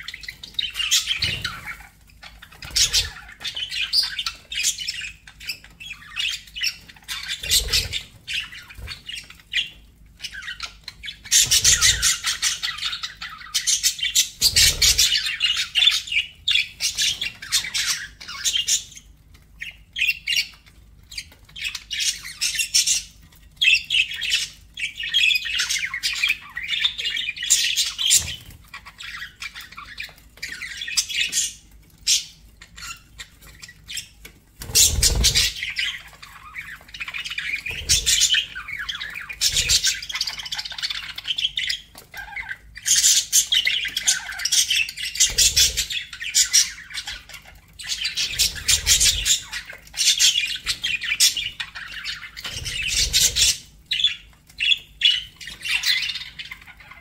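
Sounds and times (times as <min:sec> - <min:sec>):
budgerigars chirping: 0:00.0 - 0:57.0.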